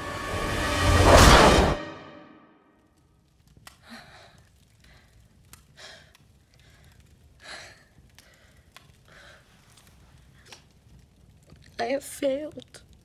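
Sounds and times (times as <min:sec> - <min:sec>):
woman breathing heavily: 0:03.8 - 0:09.6.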